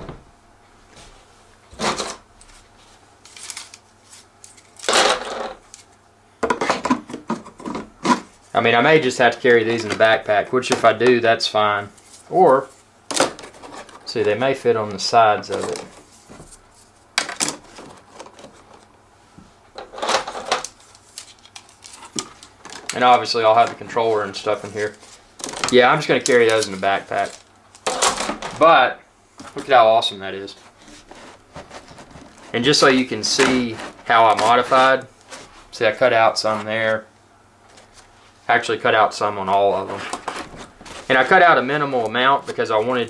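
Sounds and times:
plastic parts rustling and clattering: 1.8 - 2.6, 3.2 - 8.4, 12.0 - 18.9, 19.7 - 28.7, 29.4 - 35.5, 39.6 - 43.0.

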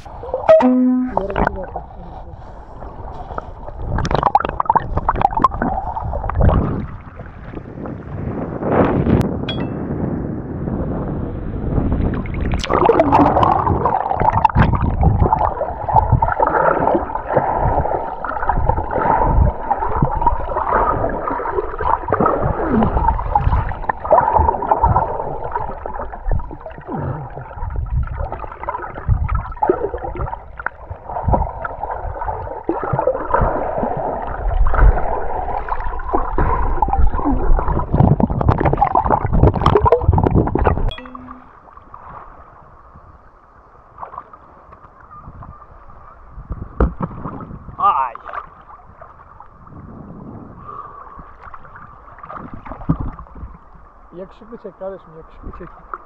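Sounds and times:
muffled underwater gurgling: 0.0 - 7.7, 12.1 - 41.4
water splashes: 0.0 - 8.4, 11.8 - 43.1, 43.8 - 56.0.

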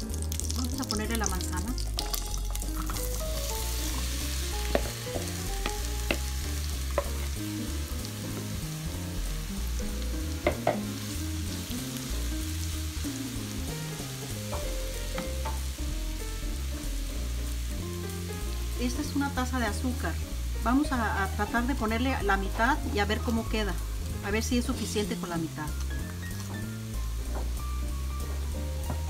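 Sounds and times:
butter sizzling in a pan: 0.0 - 29.0
spoon knocking bowl and pan: 4.6 - 6.3, 6.9 - 7.3, 10.4 - 11.0, 14.5 - 15.7.

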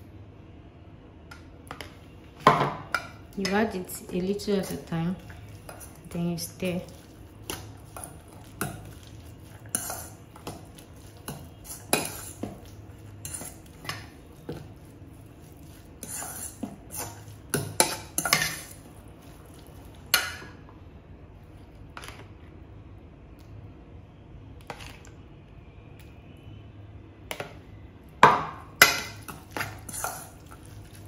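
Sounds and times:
fork clinking against metal bowl: 6.9 - 14.1, 16.0 - 18.8.

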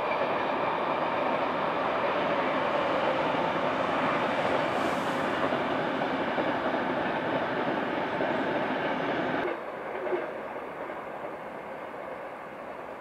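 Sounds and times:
train passing: 0.0 - 13.0.

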